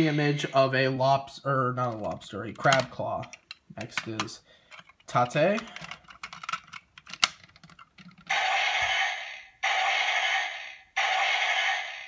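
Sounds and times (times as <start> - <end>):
plastic clicks: 1.8 - 8.3.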